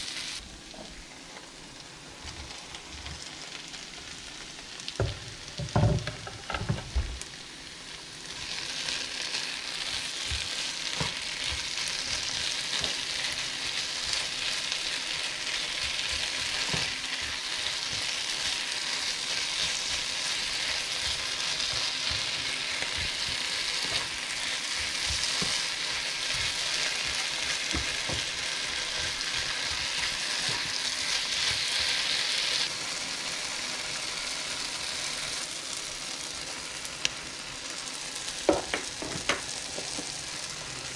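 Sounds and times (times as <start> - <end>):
vegetables sizzling in a frying pan: 0.0 - 40.9
spatula scraping and knocking pan: 38.5 - 40.2.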